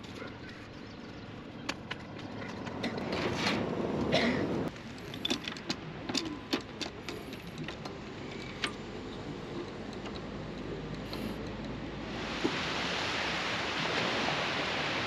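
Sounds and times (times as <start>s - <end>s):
sharp clicks and light knocks: 4.7s - 8.8s, 9.5s - 11.8s.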